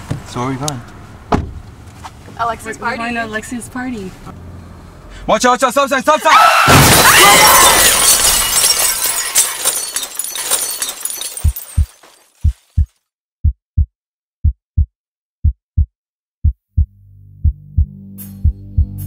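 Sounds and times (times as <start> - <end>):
glass breaking and debris: 6.7 - 13.0
heartbeat thumps: 11.4 - 19.0.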